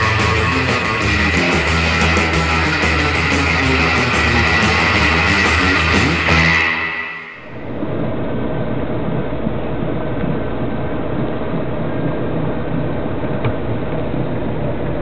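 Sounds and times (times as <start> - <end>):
water noise: 0.0 - 15.0
wind: 7.3 - 15.0.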